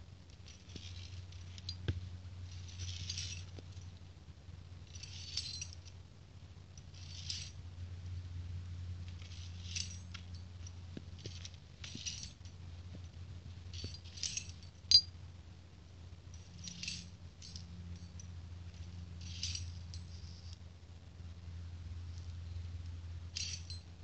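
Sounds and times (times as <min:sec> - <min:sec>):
steady low hum: 0:00.0 - 0:24.0
carabiners clinking on steel cables: 0:00.3 - 0:04.1, 0:04.8 - 0:06.0, 0:06.8 - 0:07.7, 0:09.1 - 0:15.2, 0:16.3 - 0:20.6, 0:22.1 - 0:24.0.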